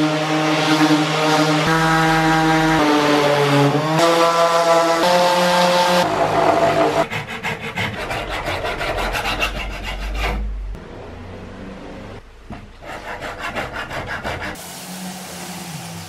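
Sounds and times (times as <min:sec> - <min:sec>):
hand rasp scraping wood: 0:05.0 - 0:10.5, 0:12.8 - 0:14.6.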